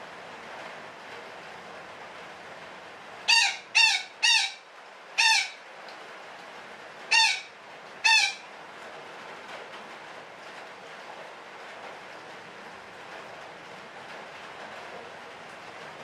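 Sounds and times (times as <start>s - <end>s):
parakeet squawks: 3.3s - 4.6s, 5.2s - 5.6s, 7.1s - 8.4s.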